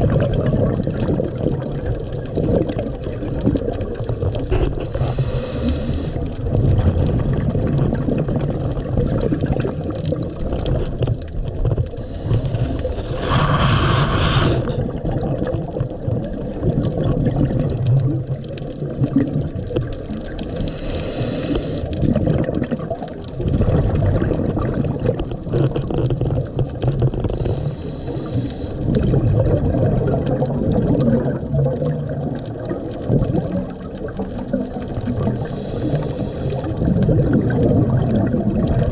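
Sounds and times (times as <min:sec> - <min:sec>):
exhaled air bubbling: 0:00.0 - 0:38.9
regulator inhalation hiss: 0:05.0 - 0:06.2, 0:12.0 - 0:14.7, 0:20.6 - 0:21.9, 0:27.4 - 0:28.8, 0:35.4 - 0:36.6.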